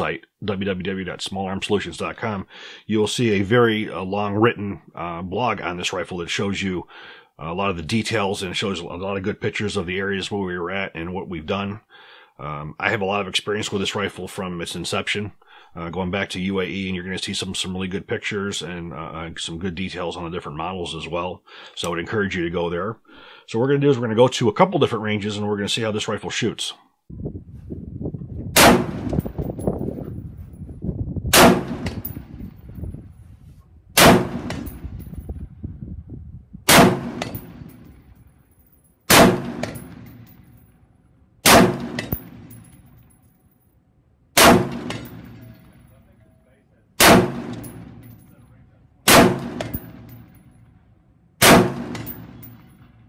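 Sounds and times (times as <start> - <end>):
rifle shots with echo: 28.6 - 29.4, 31.3 - 32.3, 34.0 - 35.0, 36.7 - 38.0, 39.1 - 40.4, 41.4 - 42.7, 44.4 - 45.7, 47.0 - 48.2, 49.1 - 50.4, 51.4 - 52.9.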